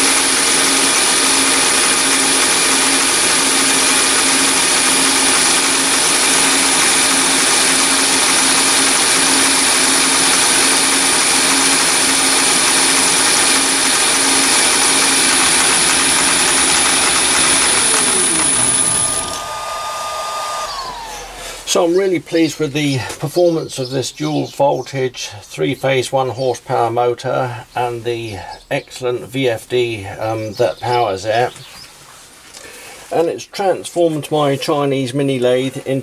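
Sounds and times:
lathe running with high whine: 0:00.0 - 0:21.9
motor winding down: 0:00.0 - 0:21.9.

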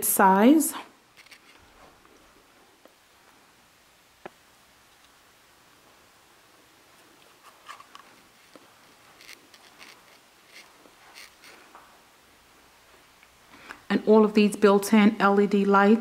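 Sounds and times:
soft rustles and scuffs: 0:01.2 - 0:03.5, 0:05.8 - 0:12.1.

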